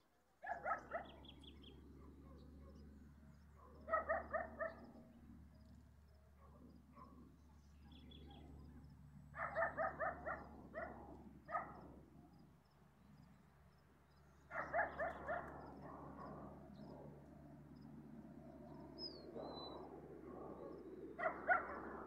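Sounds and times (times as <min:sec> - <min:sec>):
dog barking: 0:00.4 - 0:01.3, 0:02.0 - 0:02.9, 0:03.6 - 0:05.0, 0:06.4 - 0:07.2, 0:09.4 - 0:11.9, 0:14.5 - 0:16.6, 0:20.5 - 0:22.0.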